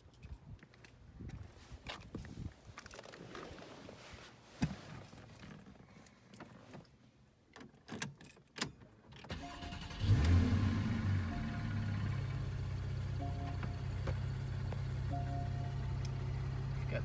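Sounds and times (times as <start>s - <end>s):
car engine starting and idling: 9.2s - 17.0s.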